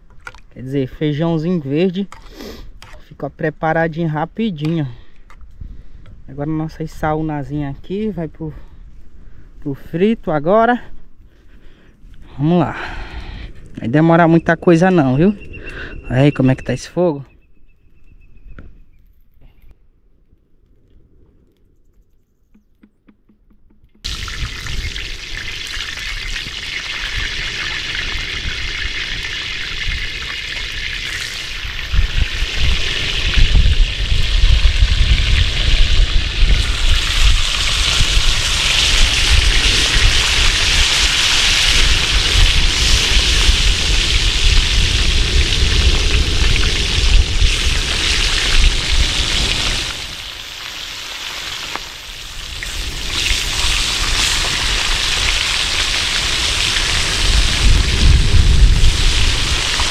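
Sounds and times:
fish sizzling in hot oil: 24.0s - 59.9s.

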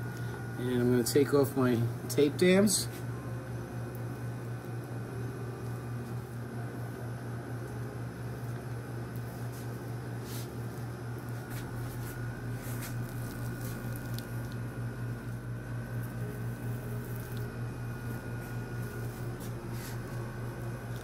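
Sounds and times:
low steady hum: 0.0s - 21.0s
tape being peeled off: 9.4s - 14.7s, 16.0s - 21.0s.

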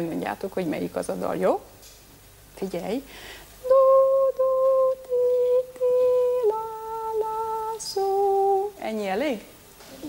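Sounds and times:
person humming a tune: 3.6s - 8.8s.

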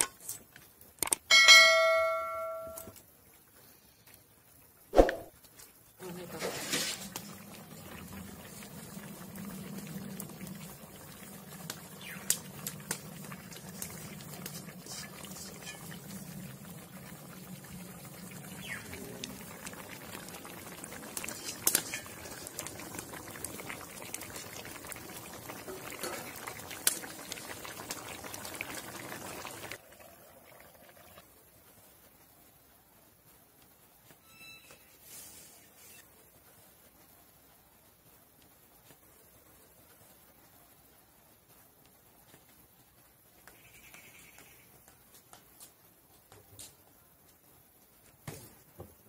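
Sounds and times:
curry bubbling in a pan: 3.0s - 34.2s, 35.0s - 44.0s
sharp pops: 4.9s - 5.3s.

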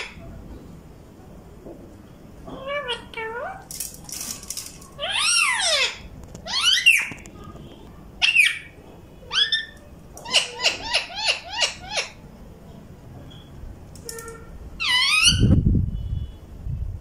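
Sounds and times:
parakeet calling: 5.0s - 7.3s, 8.2s - 12.3s, 14.8s - 15.6s.

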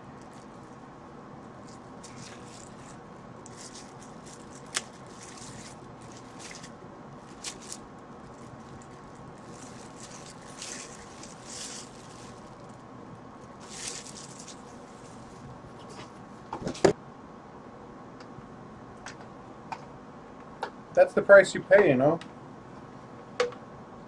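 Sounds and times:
plastic bag crinkling: 0.0s - 0.8s, 1.4s - 15.7s.

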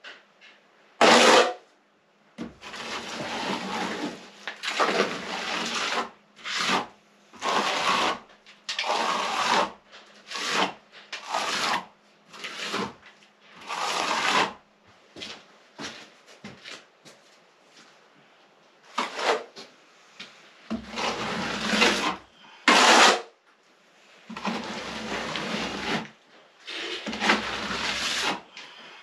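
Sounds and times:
plastering tool scraping wall: 1.0s - 1.6s, 2.4s - 14.6s, 18.9s - 19.7s, 20.7s - 23.4s, 24.2s - 29.0s.

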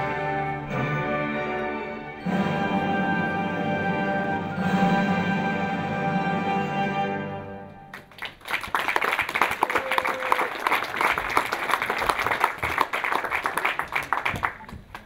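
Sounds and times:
audience applauding: 7.9s - 15.0s.

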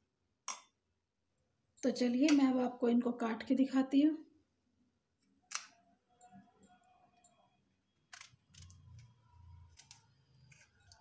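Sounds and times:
kitchen knife cutting: 8.1s - 11.0s.

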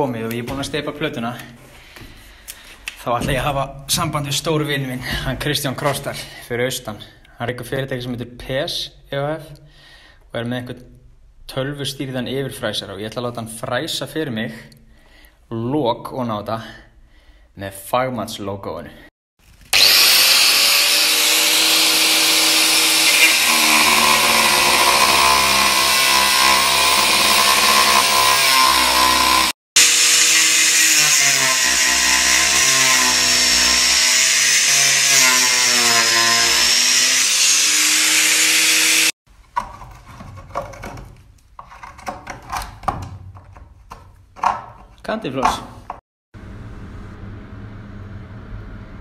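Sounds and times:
angle grinder cutting plastic: 19.5s - 39.2s.

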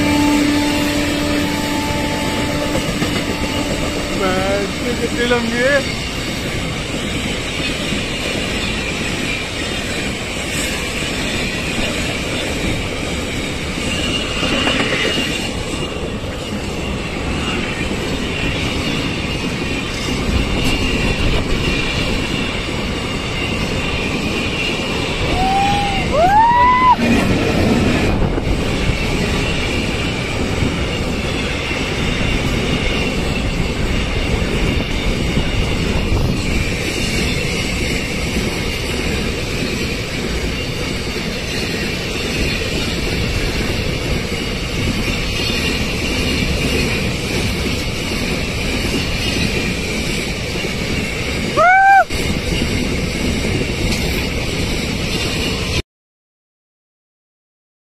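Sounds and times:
freight wagon wheels rumbling on rail: 0.0s - 55.8s.

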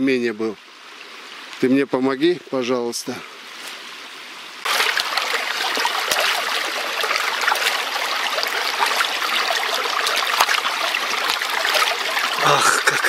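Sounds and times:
stream babbling over rocks: 4.6s - 13.0s
hands splashing in water: 4.7s - 12.4s.

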